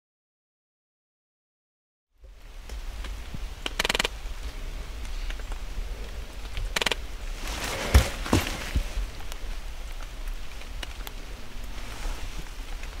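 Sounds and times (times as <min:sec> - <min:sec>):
light ticks: 0:02.2 - 0:07.0, 0:09.2 - 0:11.8
rustling: 0:02.7 - 0:13.0
dull thumps: 0:07.4 - 0:09.1.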